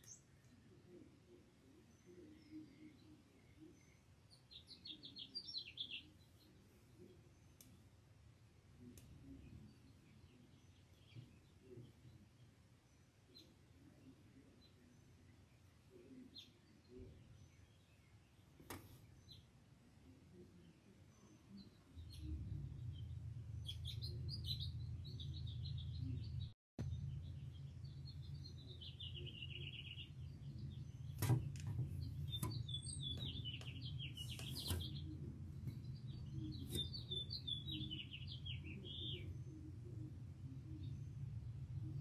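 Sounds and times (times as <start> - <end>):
songbirds chirping and trilling: 0.0 - 42.0
steady low rumble: 21.9 - 31.2.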